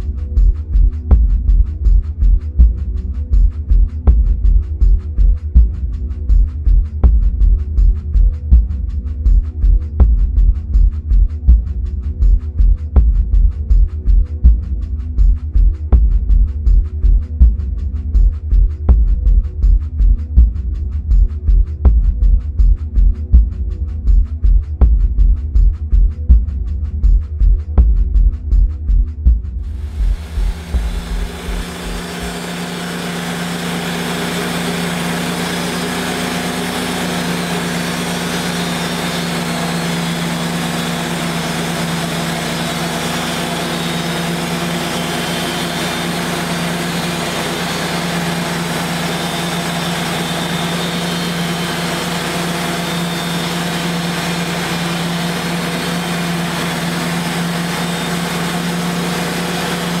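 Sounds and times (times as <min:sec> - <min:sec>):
band sawmill sawing log: 0:29.8 - 1:00.0.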